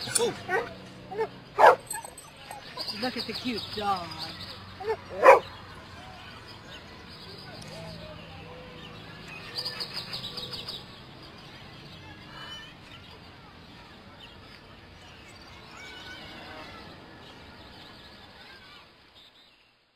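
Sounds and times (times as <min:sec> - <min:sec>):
birds chirping: 0:00.0 - 0:19.6
outdoor background noise: 0:00.0 - 0:19.9.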